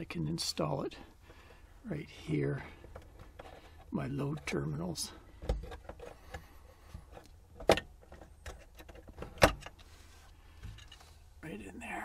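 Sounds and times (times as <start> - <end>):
plastic parts clicking and rustling: 2.8 - 9.9.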